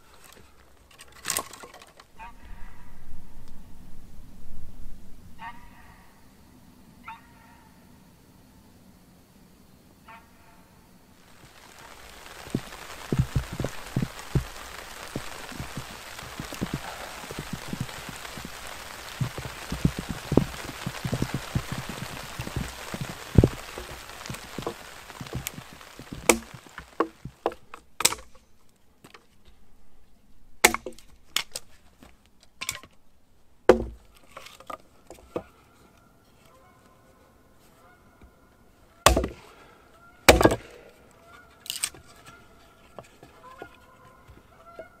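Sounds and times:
rustling hiss: 0.0s - 45.0s
wood cracking and knocking: 0.1s - 2.1s, 11.2s - 28.4s, 30.6s - 31.7s, 32.5s - 33.0s, 33.7s - 35.5s, 39.0s - 39.6s, 40.3s - 41.0s
thuds: 33.7s - 34.1s, 39.1s - 39.5s, 40.3s - 40.9s.

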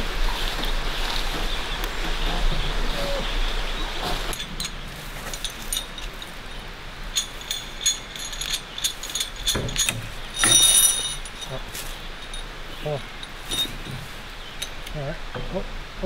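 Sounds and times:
metal clinks and clanks: 4.3s - 15.5s.

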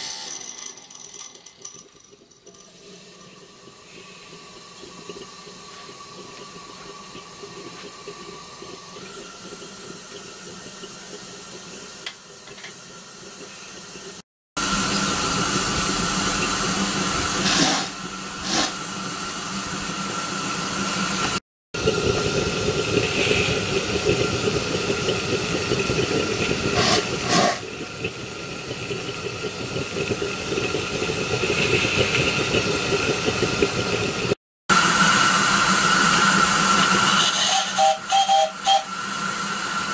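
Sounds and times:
gas burner hissing: 11.9s - 19.0s, 20.8s - 27.8s
steam escaping: 14.6s - 18.9s, 21.8s - 28.0s, 31.2s - 33.6s, 34.7s - 39.9s.

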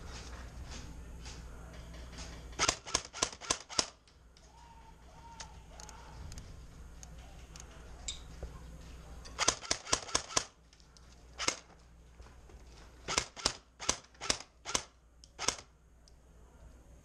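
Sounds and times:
airsoft gun shots: 2.6s - 4.0s, 9.4s - 10.6s, 13.1s - 15.7s.

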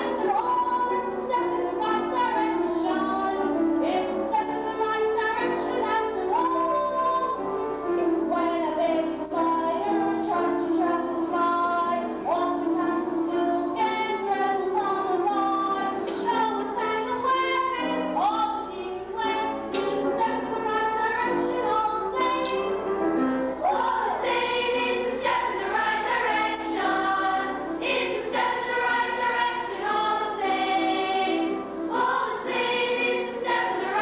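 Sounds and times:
woman singing: 0.0s - 22.8s.

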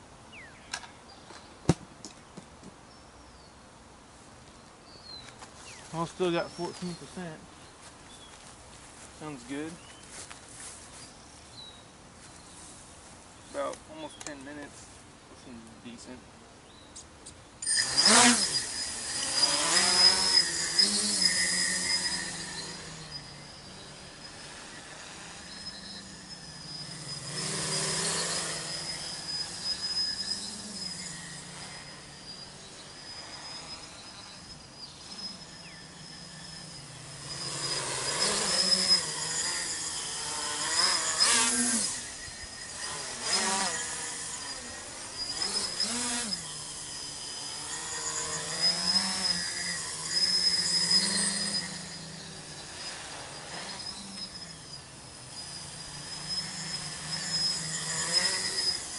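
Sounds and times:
drone propellers buzzing: 17.6s - 58.9s.

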